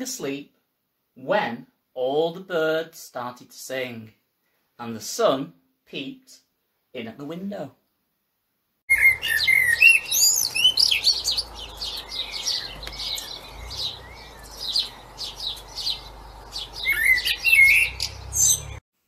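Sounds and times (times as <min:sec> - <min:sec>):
blackbird singing: 0:08.9 - 0:18.8.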